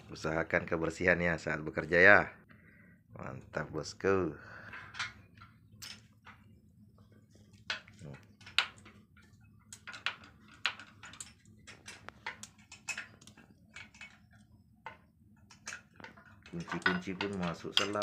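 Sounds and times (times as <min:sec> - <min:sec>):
light metal clicks and clinks: 0:07.5 - 0:18.0.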